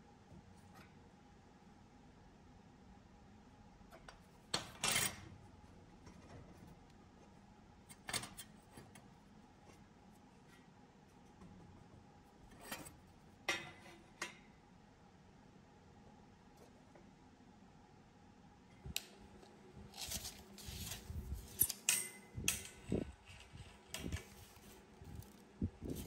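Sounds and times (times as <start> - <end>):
faint steady hum: 0.0 - 26.0
metal tools clinking and scraping: 20.0 - 26.0.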